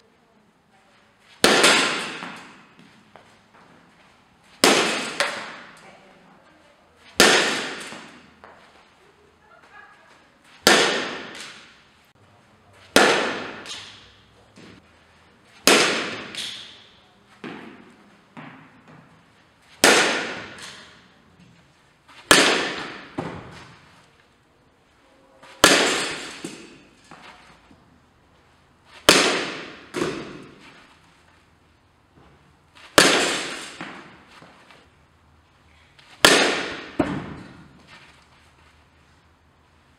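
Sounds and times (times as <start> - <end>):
bat striking softballs: 1.2 - 3.7, 4.4 - 5.8, 7.0 - 8.8, 10.5 - 11.9, 12.8 - 14.9, 15.5 - 24.0, 25.4 - 27.8, 28.8 - 31.4, 32.2 - 34.9, 35.9 - 38.3.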